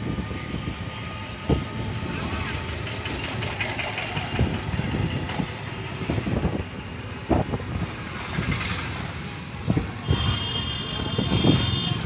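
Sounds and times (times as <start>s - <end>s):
vehicle rumble: 0.0s - 12.0s.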